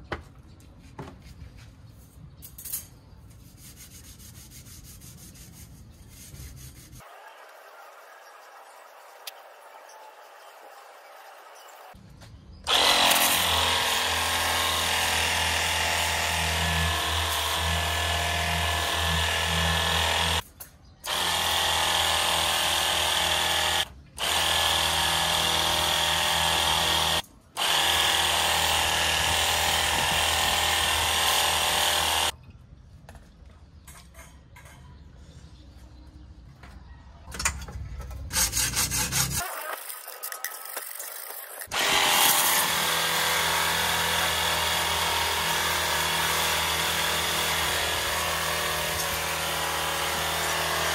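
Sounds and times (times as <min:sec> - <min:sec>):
motor hum: 0:12.7 - 0:20.4.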